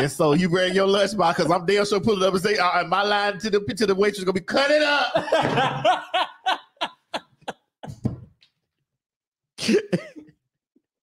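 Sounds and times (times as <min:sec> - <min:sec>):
hearty laughter: 0:05.2 - 0:08.0.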